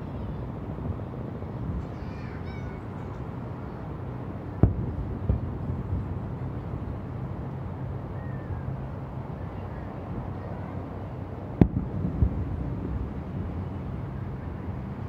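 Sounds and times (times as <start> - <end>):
sharp firework bang: 4.6 - 5.5, 11.6 - 12.4
distant fireworks booming: 4.6 - 6.2, 11.6 - 13.1.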